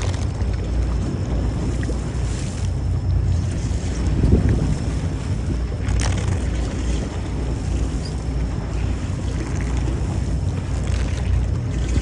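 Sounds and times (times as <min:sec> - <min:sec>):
wind rumbling on microphone: 0:00.0 - 0:12.0.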